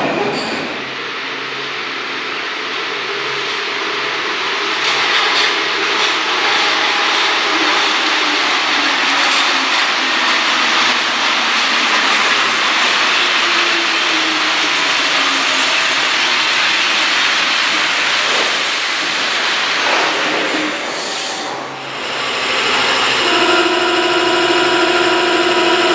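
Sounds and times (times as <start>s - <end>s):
train tyres hissing: 11.7s - 23.2s
train motor tone falling in pitch: 21.8s - 25.9s.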